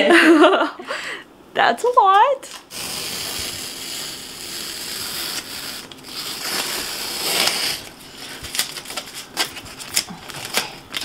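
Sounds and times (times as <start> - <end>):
tape peeling off wall: 2.6 - 11.0.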